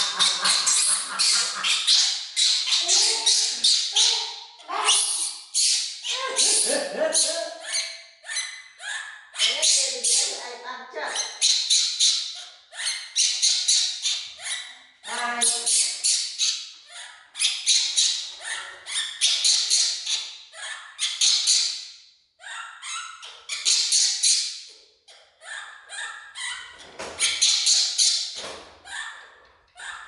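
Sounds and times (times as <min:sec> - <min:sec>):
baby monkey shrill calls: 0:00.0 - 0:10.4.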